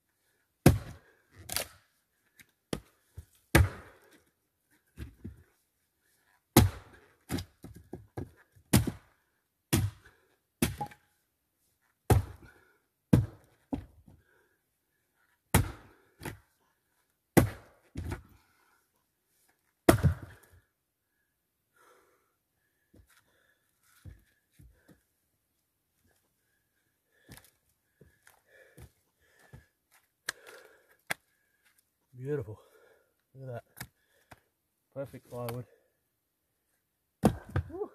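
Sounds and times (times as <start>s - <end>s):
axe striking wood: 0.6s - 1.8s, 3.5s - 4.0s, 6.6s - 7.5s, 8.7s - 9.1s, 9.7s - 11.0s, 12.1s - 12.4s, 13.1s - 13.9s, 15.5s - 16.4s, 17.4s - 18.2s, 19.9s - 20.4s, 37.2s - 37.8s.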